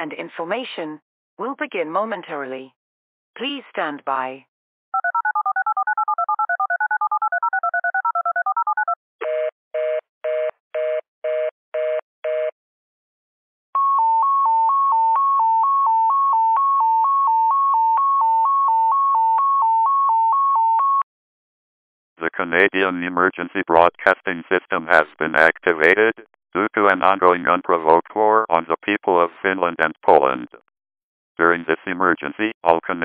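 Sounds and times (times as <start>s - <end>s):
telephone touch tones: 5.0s - 9.5s.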